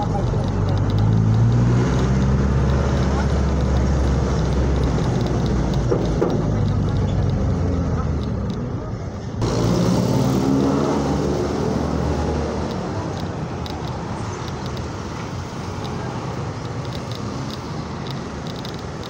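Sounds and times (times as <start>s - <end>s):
light clicks: 0.0s - 8.7s, 12.6s - 19.0s
road traffic noise: 0.0s - 19.0s.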